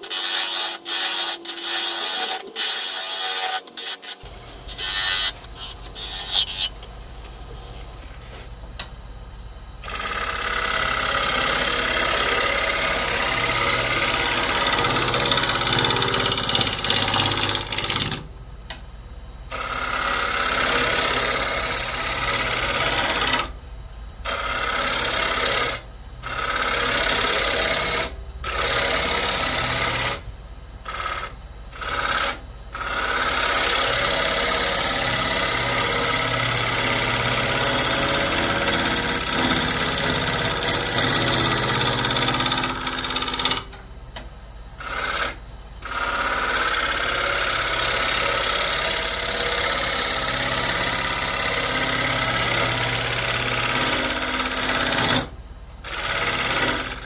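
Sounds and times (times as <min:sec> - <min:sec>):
turning tool scraping spinning wood: 0:00.0 - 0:06.8, 0:09.8 - 0:18.2, 0:19.6 - 0:23.4, 0:31.2 - 0:43.7, 0:44.8 - 0:55.3, 0:55.9 - 0:57.0
lathe motor hum: 0:00.0 - 0:08.9, 0:09.5 - 0:18.8, 0:19.5 - 0:23.6, 0:24.2 - 0:57.0.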